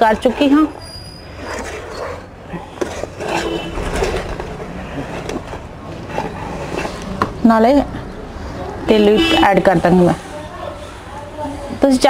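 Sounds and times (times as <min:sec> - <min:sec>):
ladle scraping a pan: 0:00.0 - 0:07.2.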